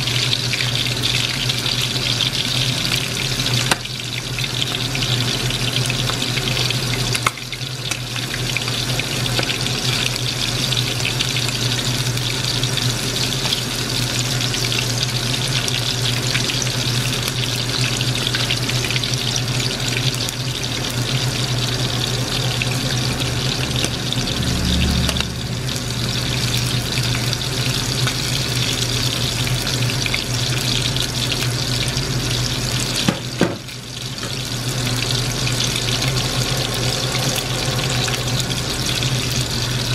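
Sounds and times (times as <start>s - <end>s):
food deep-frying in oil: 0.0s - 39.9s
low steady hum: 20.2s - 33.0s, 33.7s - 39.9s.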